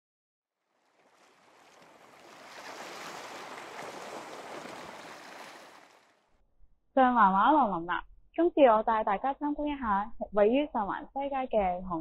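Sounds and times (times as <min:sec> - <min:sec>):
ocean surf washing: 0:01.0 - 0:06.0.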